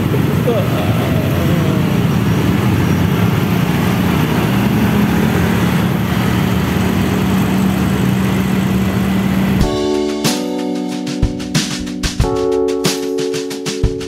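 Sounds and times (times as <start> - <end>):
motorbike and car engines: 0.0 - 10.4.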